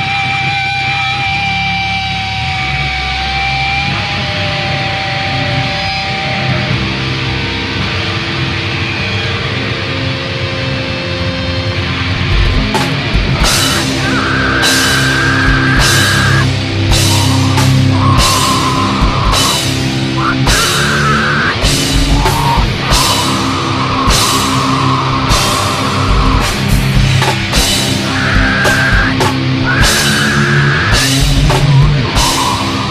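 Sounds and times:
live rock band playing: 0:00.0 - 0:32.9
cymbal crashes: 0:13.4 - 0:32.9
high held notes: 0:13.4 - 0:32.9.

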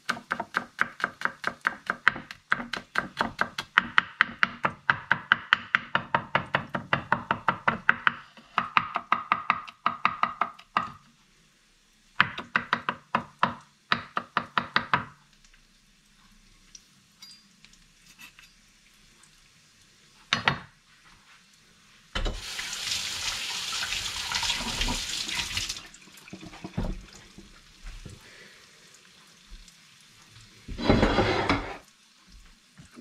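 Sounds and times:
pots and dishes clanking: 0:22.2 - 0:22.4, 0:30.7 - 0:31.8
tap running into sink: 0:24.2 - 0:28.2.

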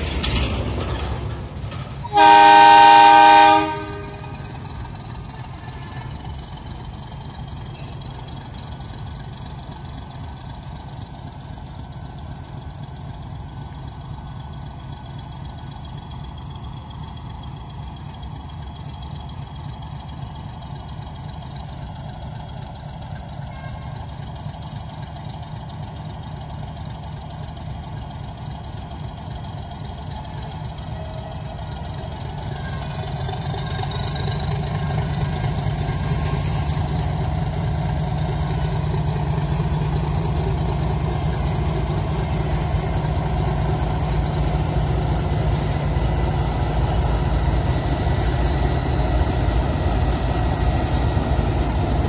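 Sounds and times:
diesel locomotive engine running: 0:00.0 - 0:52.0.

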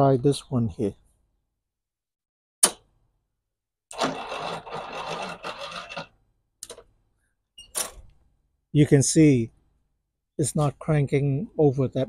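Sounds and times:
sharp click: 0:02.6 - 0:02.9
mower starter cranking weakly: 0:03.9 - 0:06.1.

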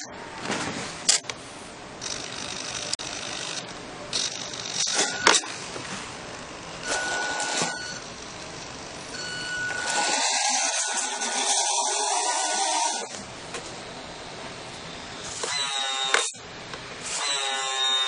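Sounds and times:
toy truck motor whirring: 0:02.0 - 0:05.3, 0:09.6 - 0:13.2.

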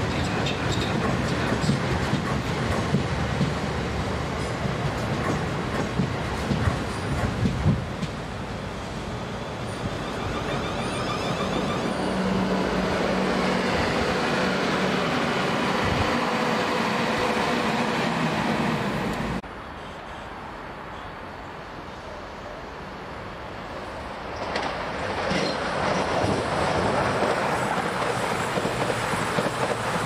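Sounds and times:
knocks of passing train: 0:00.0 - 0:08.3, 0:24.4 - 0:30.0
train passing rumble: 0:00.0 - 0:30.0.

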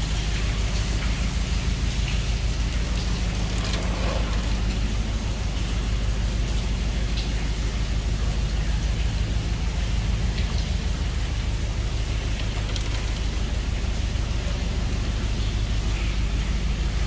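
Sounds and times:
boat engine running: 0:00.0 - 0:16.8
water dripping from tunnel roof: 0:00.0 - 0:17.0.

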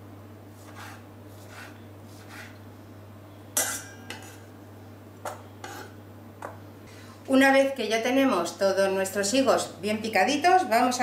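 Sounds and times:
knife cutting on wooden board: 0:00.6 - 0:02.6
metal clink on steel bowl: 0:03.6 - 0:04.4.

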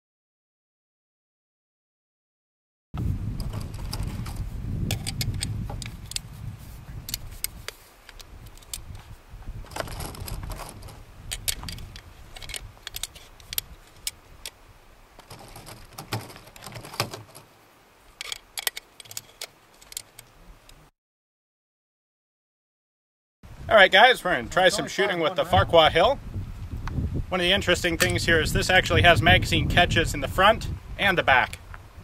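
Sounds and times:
metallic clicks and rattles: 0:03.4 - 0:06.2, 0:09.7 - 0:14.6, 0:15.2 - 0:17.4, 0:18.2 - 0:20.4.

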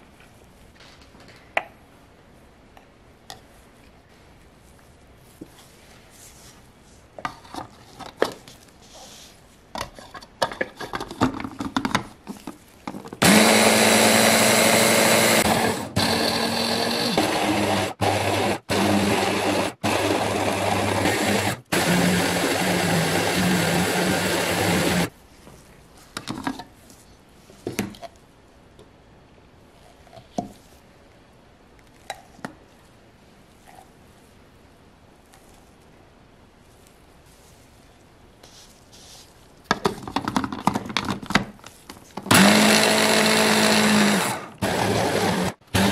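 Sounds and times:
food chopper motor grinding: 0:13.2 - 0:25.1, 0:42.3 - 0:45.9.

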